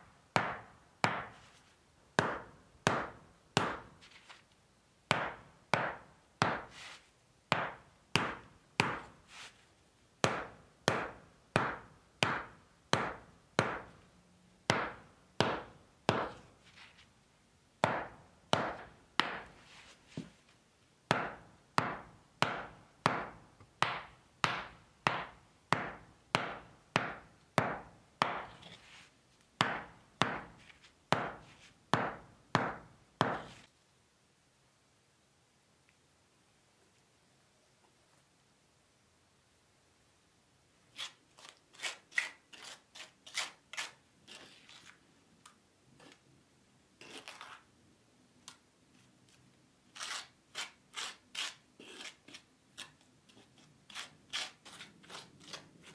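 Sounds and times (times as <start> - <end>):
hammer striking wood blocks: 0.4 - 1.5, 2.2 - 4.0, 5.1 - 6.8, 7.5 - 9.2, 10.2 - 14.0, 14.7 - 16.5, 17.8 - 19.6, 21.1 - 28.7, 29.6 - 33.7.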